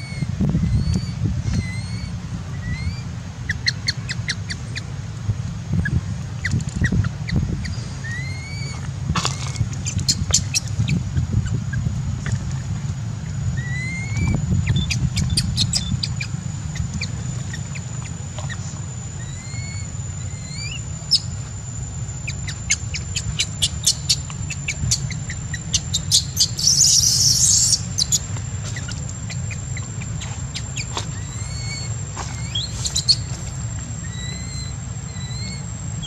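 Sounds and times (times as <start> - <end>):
baby monkey squeaky cries: 0.0 - 4.8, 5.8 - 11.8, 13.6 - 21.4, 22.2 - 33.4, 34.0 - 35.7
low rumble: 0.0 - 36.0.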